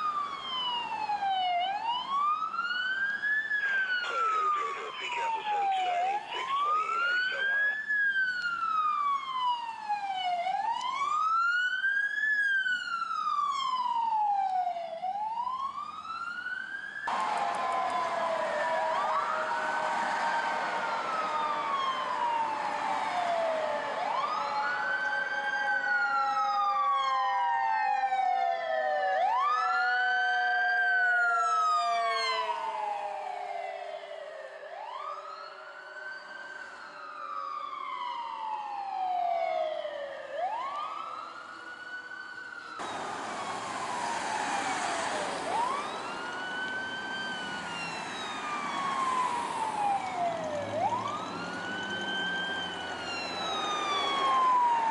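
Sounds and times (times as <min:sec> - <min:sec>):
electronic siren wail: 0:00.0 - 0:54.9
mechanical siren winding down: 0:17.0 - 0:34.2, 0:42.7 - 0:54.9.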